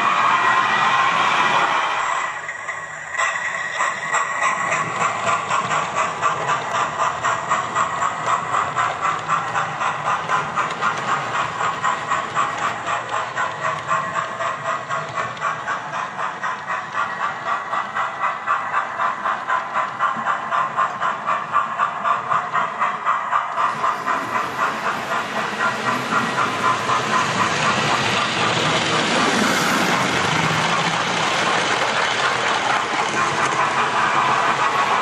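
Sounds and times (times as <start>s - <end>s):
model steam locomotive chuffs: 0.0s - 35.0s.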